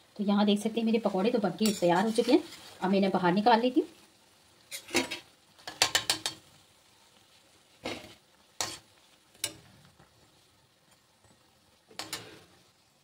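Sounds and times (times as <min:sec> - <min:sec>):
faint sizzle of frying oil: 0:00.0 - 0:13.0
slotted spoon scraping metal pan: 0:01.6 - 0:02.6.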